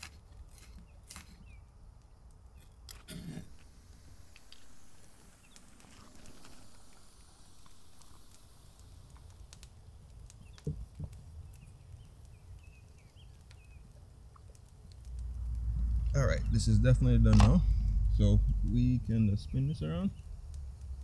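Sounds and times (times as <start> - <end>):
fire crackling: 0.0 - 21.0
pot boiling: 3.4 - 21.0
low rumble: 14.9 - 21.0.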